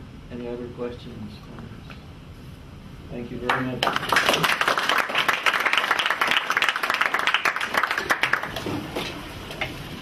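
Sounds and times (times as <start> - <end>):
audience applauding: 3.5 - 8.6.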